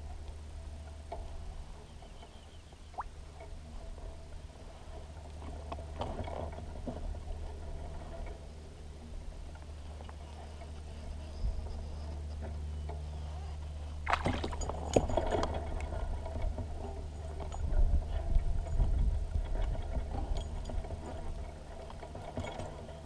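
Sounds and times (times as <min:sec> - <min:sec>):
fish splashing at water surface: 0:14.0 - 0:14.6.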